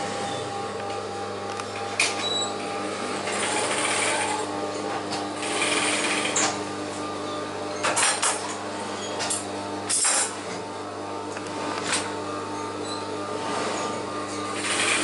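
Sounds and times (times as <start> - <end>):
steady motor hum: 0.0 - 15.0
sewing machines stitching: 3.0 - 4.5, 5.4 - 6.6, 13.3 - 14.0, 14.6 - 15.0.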